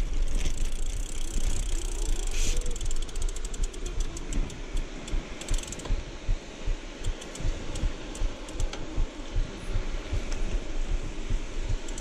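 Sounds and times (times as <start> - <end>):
bicycle freewheel ticking: 0.0 - 6.4, 7.0 - 8.8, 11.3 - 12.0
wind: 0.0 - 12.0.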